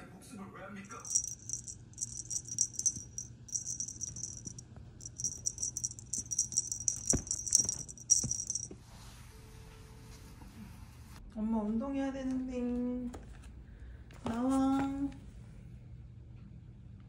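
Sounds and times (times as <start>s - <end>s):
small bell jingling: 0.9s - 8.7s.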